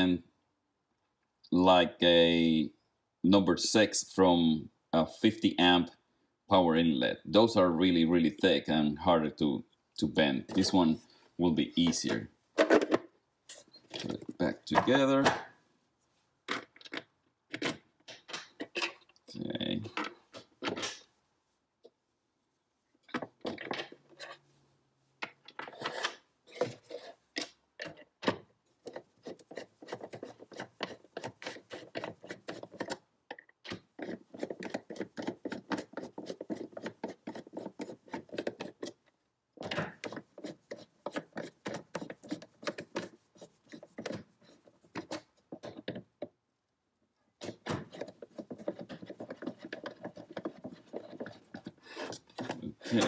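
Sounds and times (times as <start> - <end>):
screwdriver clicking and scraping: 28.7 - 46.1, 47.4 - 53.0.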